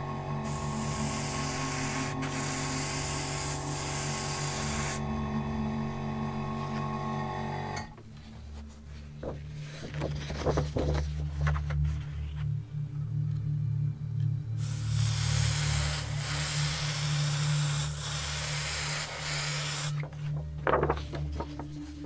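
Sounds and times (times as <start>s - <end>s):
background music: 0.0s - 22.0s
airbrush spraying hiss: 0.4s - 5.0s, 14.6s - 20.0s.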